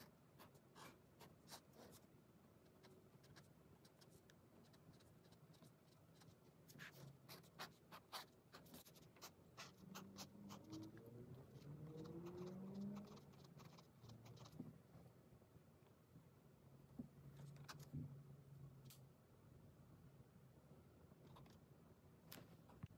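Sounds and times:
pen scratching on paper: 0.0s - 2.0s, 2.8s - 14.6s.

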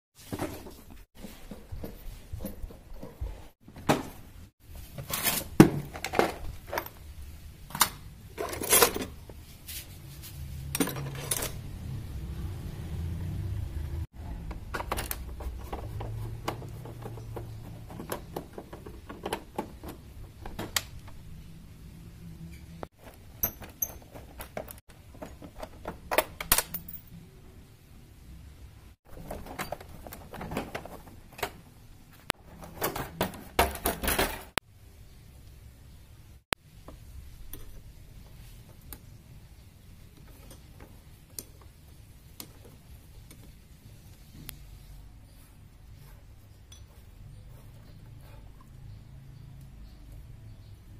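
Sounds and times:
metal tools clinking and clanking: 8.3s - 9.2s, 10.7s - 11.6s, 22.5s - 24.8s, 29.2s - 30.9s.

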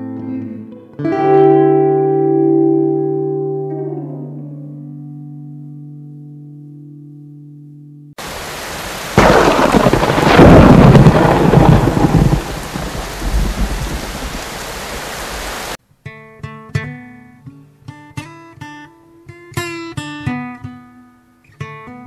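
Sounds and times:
rain-like hiss: 8.2s - 15.8s
deep rolling rumble: 9.1s - 15.6s.

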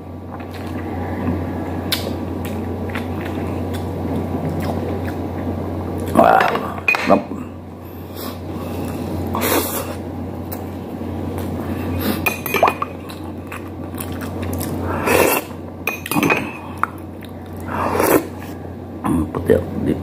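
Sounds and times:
steady low hum: 0.0s - 20.0s
person chewing food: 0.2s - 6.3s, 8.0s - 18.7s
plates clinking: 12.2s - 13.0s, 15.9s - 16.8s.

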